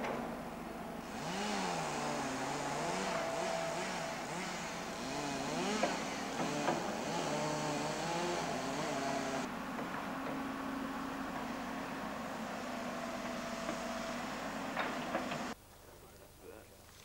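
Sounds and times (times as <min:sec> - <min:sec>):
chainsaw engine revving: 0:01.0 - 0:09.5.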